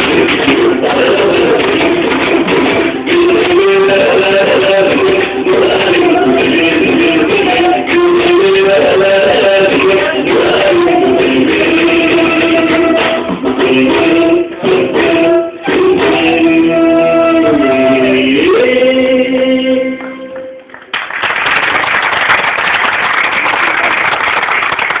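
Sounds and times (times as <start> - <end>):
instrumental music: 0.0 - 20.7
person singing long gliding notes: 0.6 - 20.7
audience applause: 20.7 - 25.0.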